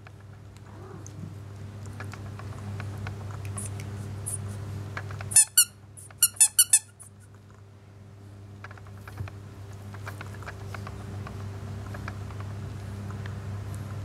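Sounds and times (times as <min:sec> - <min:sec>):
squeaky toy squeaks: 0:05.3 - 0:07.1.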